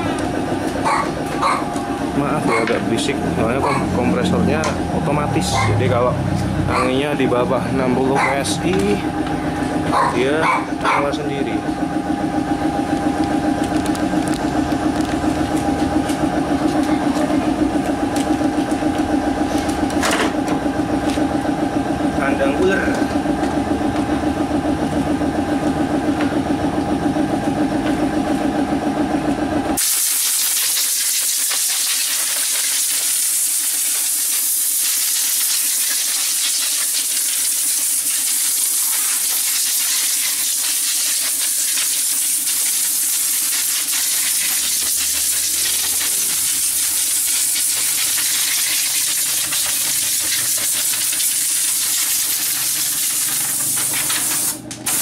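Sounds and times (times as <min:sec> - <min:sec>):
air compressor pulsing hum: 0:00.0 - 0:55.0
compressed air hissing: 0:29.8 - 0:55.0.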